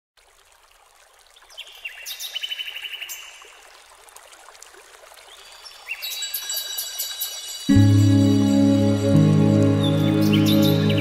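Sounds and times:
running water: 0.2 - 11.0
bird chirps and trill: 9.7 - 11.0.

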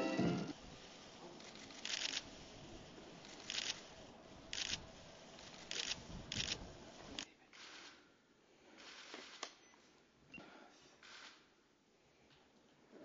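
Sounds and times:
brass band music: 0.0 - 0.5
camera shutters clicking: 1.4 - 2.3, 3.3 - 3.9, 4.5 - 4.8, 5.4 - 8.0.

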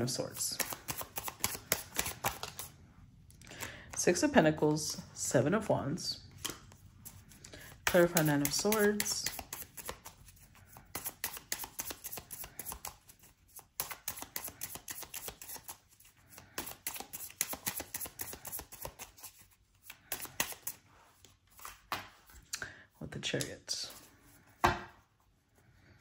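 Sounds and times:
cards being shuffled: 0.1 - 2.8, 6.3 - 22.5.

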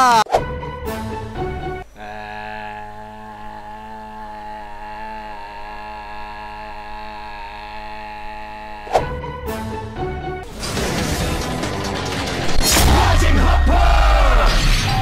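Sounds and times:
person singing into a fan: 2.0 - 9.0.

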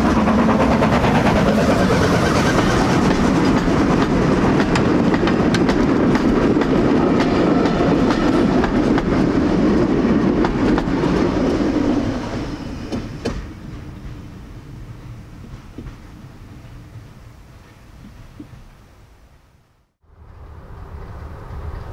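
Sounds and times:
wheels clicking over rail joints: 0.0 - 11.7
railway carriages rumbling: 0.0 - 19.1, 20.1 - 21.9.

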